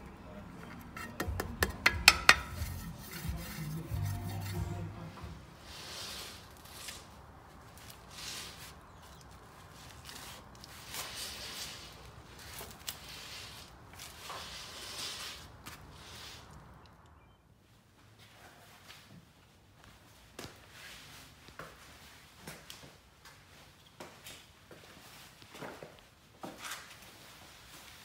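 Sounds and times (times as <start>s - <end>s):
soft rubbing swishes: 2.4s - 16.6s.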